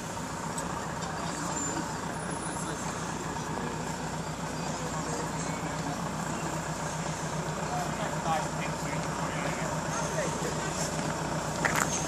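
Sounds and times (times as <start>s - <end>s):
engine droning: 0.0s - 12.0s
faint voices: 0.1s - 12.0s.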